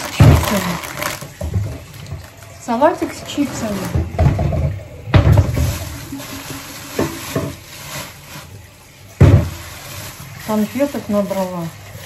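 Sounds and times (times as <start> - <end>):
plastic bag rustling: 0.0 - 12.0.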